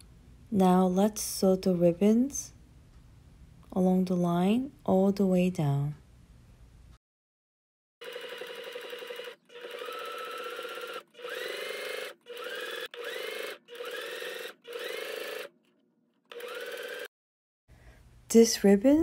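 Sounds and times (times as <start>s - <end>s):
electric sewing machine stitching: 8.0s - 17.1s.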